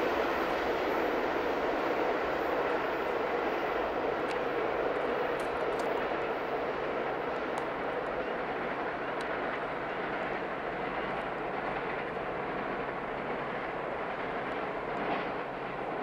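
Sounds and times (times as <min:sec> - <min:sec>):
train wheels rumbling on rails: 0:00.0 - 0:16.0
faint clicks: 0:04.2 - 0:06.1.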